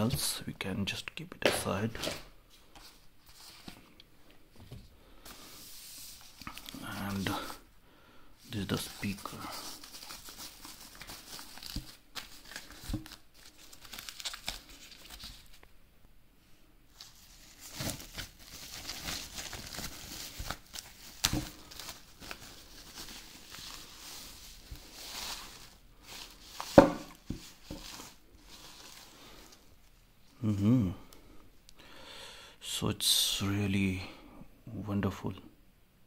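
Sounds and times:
plastic bag crinkling and rustling: 0:08.4 - 0:15.7, 0:16.9 - 0:30.3.

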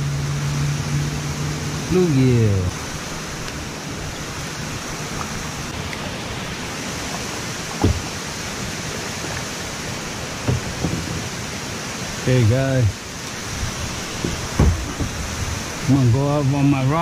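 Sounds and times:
water rushing around kayak: 0:00.0 - 0:17.0
dull thumps: 0:07.8 - 0:08.2, 0:10.4 - 0:11.3, 0:14.2 - 0:15.5.

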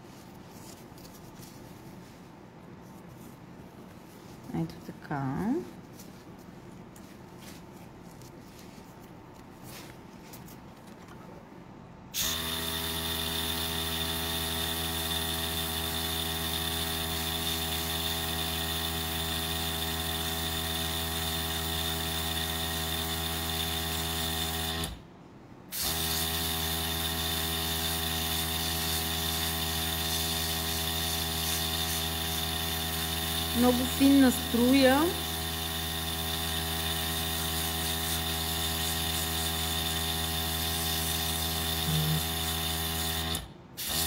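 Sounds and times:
compressor motor hum: 0:41.4 - 0:43.4
airbrush hissing: 0:41.8 - 0:42.3.

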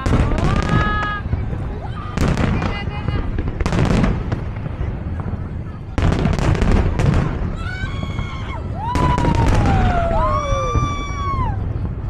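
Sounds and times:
firework bangs: 0:00.0 - 0:12.0
firework crackling bursts: 0:00.0 - 0:12.0
firework whistling: 0:00.0 - 0:12.0.

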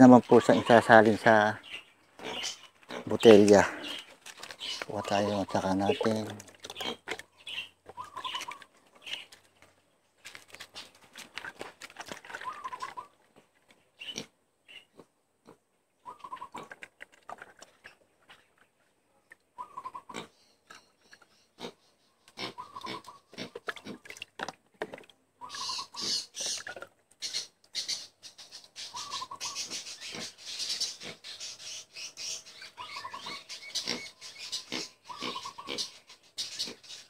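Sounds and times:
liquid glugging into plastic bottle: 0:02.2 - 0:13.5, 0:16.3 - 0:18.7, 0:22.4 - 0:25.2, 0:26.0 - 0:27.2.

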